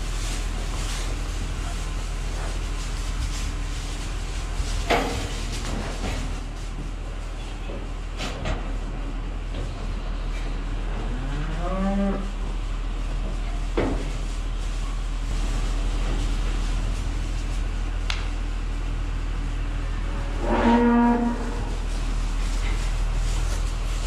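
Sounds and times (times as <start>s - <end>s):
low rumble: 8.7s - 24.0s
cows mooing: 10.8s - 12.4s, 19.9s - 21.8s.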